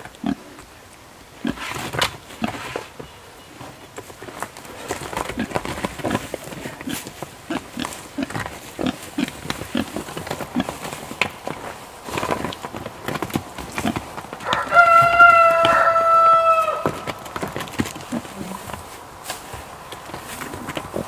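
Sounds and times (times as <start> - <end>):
pigs grunting: 0.2 - 0.6, 4.6 - 11.1, 13.7 - 16.8, 17.6 - 18.9, 20.1 - 21.0
rooster crowing: 14.4 - 17.1.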